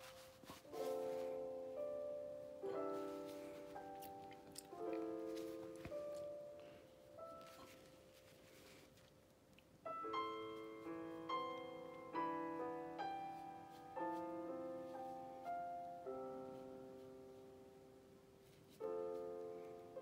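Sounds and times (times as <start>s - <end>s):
slow piano notes and chords: 0.0s - 20.0s.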